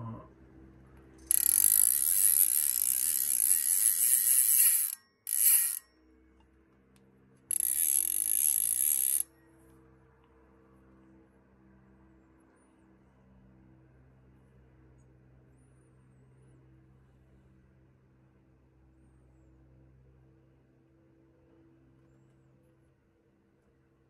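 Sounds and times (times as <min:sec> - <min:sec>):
fly reel clicking buzz: 0:01.3 - 0:05.8, 0:07.5 - 0:09.2.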